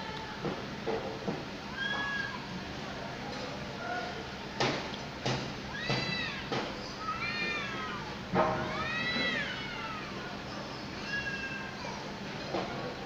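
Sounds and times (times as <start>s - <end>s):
cats yowling: 5.7s - 10.3s.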